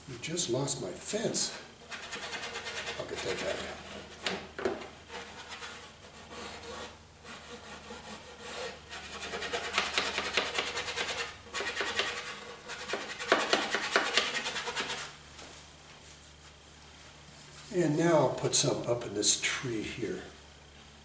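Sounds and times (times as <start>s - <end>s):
paintbrush scrubbing on canvas: 1.9s - 4.3s.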